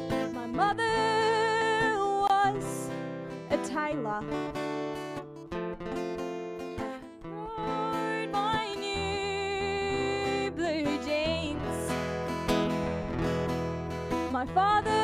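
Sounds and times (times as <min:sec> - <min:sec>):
woman singing: 0:00.0 - 0:04.6, 0:07.2 - 0:12.1, 0:14.1 - 0:15.0
acoustic guitar accompaniment: 0:00.0 - 0:15.0.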